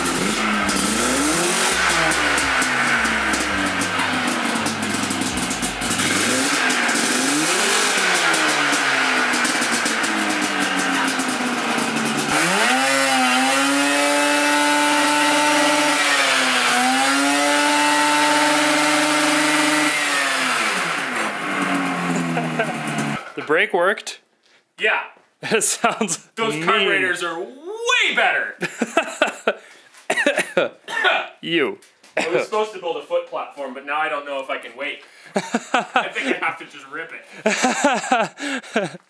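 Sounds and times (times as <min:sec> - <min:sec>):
snowmobile engine revving: 0:00.0 - 0:23.4, 0:35.4 - 0:36.5, 0:37.5 - 0:38.8.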